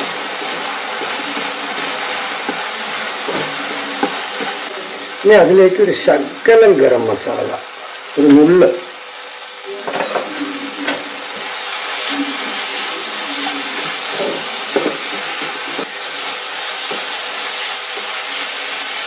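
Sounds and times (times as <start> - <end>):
spatula scraping a pan: 0.0 - 4.6
vegetables sizzling in a pan: 0.0 - 19.0.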